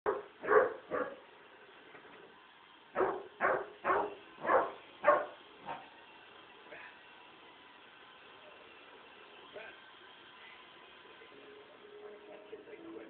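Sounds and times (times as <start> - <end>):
puppy barking: 0.1 - 1.2, 3.0 - 5.8.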